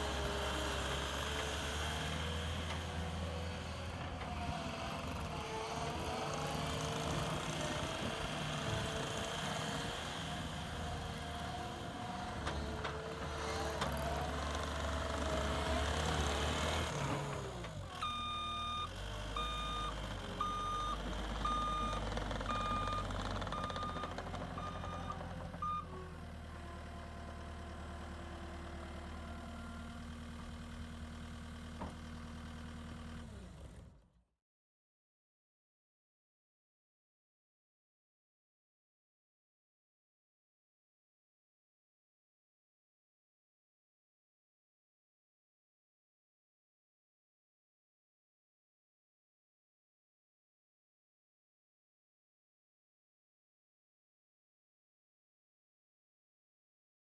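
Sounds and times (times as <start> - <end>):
diesel engine under load: 0.0 - 34.1.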